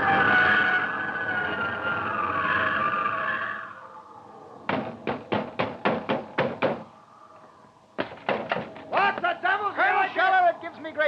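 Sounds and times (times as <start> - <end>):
rapid knocking on a door: 4.7 - 6.8.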